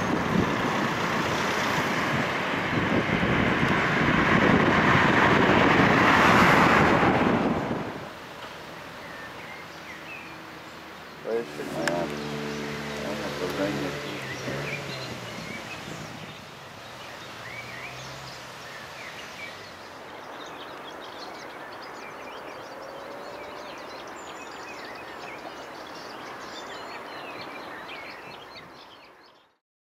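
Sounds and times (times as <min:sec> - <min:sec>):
birds singing and chirping: 0:08.5 - 0:29.6.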